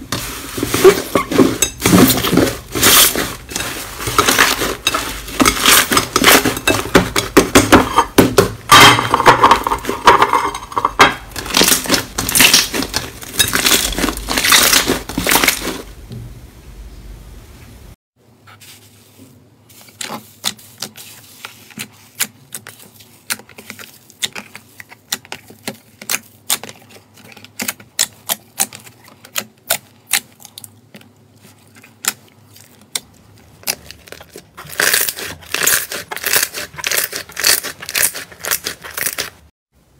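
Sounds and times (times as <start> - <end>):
slime crackling and popping: 11.4 - 15.8.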